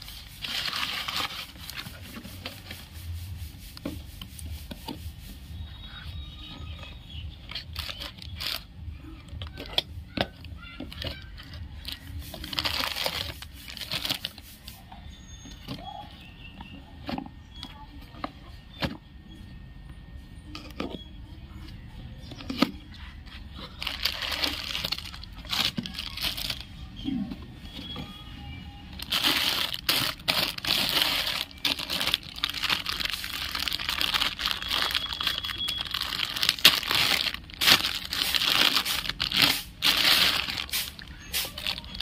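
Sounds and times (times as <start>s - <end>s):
plastic wrapping rustling and tearing: 0.0s - 14.9s, 22.4s - 26.8s, 28.9s - 42.0s.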